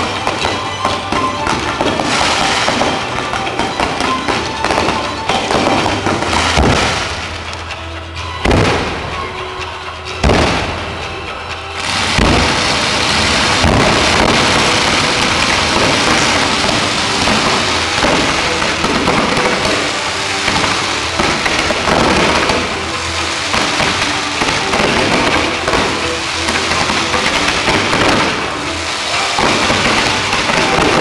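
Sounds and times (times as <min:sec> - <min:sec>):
fireworks hissing and crackling: 0:00.0 - 0:31.0
firework launch thumps: 0:08.5 - 0:09.1.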